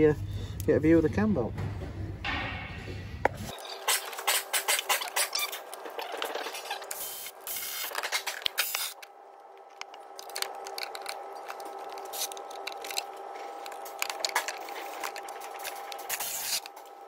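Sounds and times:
steady background hum: 0.0s - 17.0s
clicks and scrapes of bolts: 3.8s - 16.8s.

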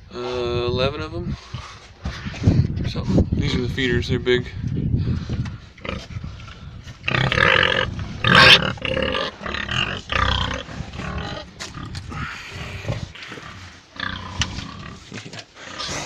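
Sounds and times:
pigs grunting and calling: 5.8s - 16.0s.

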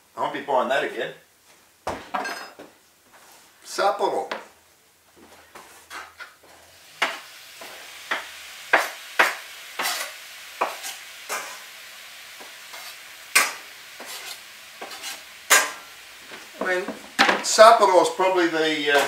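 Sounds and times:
chicken sizzling in a pan: 5.6s - 19.0s
utensil scraping and knocking pan: 8.8s - 11.6s, 12.4s - 17.5s.

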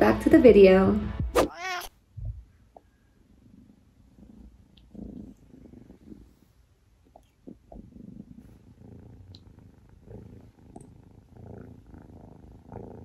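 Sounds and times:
kitten purring: 3.3s - 13.0s.

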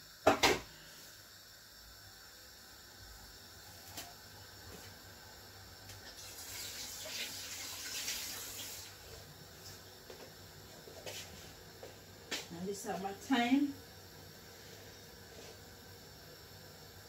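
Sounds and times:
water running from tap: 6.0s - 9.2s.

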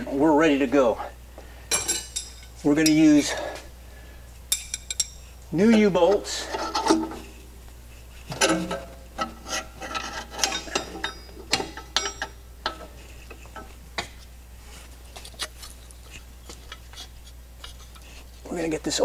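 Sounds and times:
metal bolts clinking and rattling: 1.7s - 3.4s, 4.5s - 5.9s, 8.3s - 14.2s.

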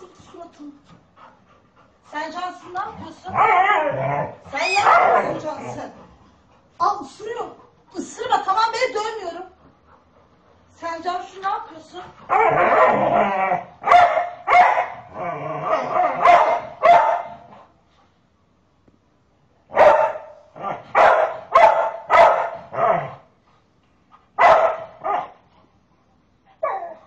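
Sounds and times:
dog barking: 4.7s - 5.4s, 12.3s - 13.0s, 13.8s - 15.0s, 16.1s - 17.5s, 19.7s - 23.0s, 24.4s - 25.4s, 26.6s - 27.0s.

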